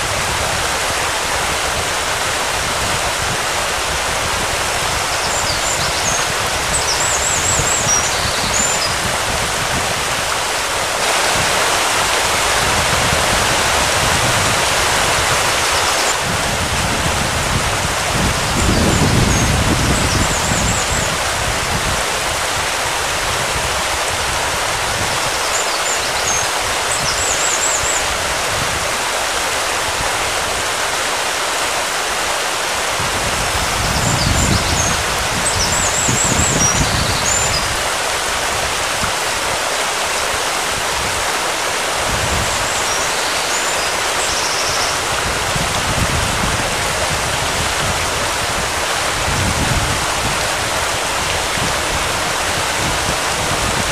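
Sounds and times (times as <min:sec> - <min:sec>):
wind buffeting microphone: 0:00.0 - 0:25.4, 0:32.9 - 0:39.6, 0:40.3 - 0:43.2, 0:44.2 - 0:53.9.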